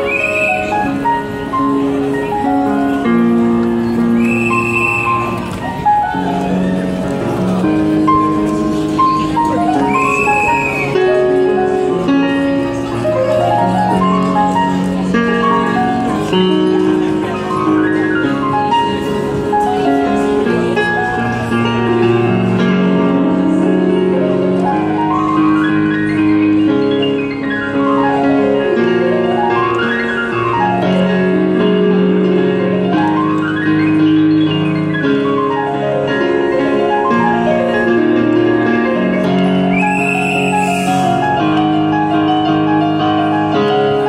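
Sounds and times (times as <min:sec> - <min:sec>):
digital piano playing: 0:00.0 - 0:44.0.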